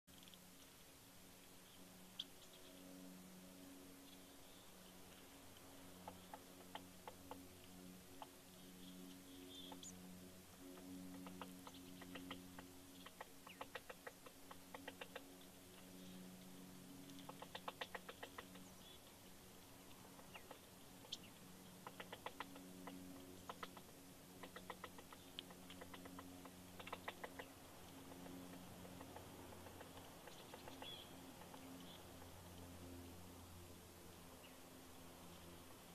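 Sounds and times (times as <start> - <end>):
woodpecker tapping on branch: 21.8 - 27.5.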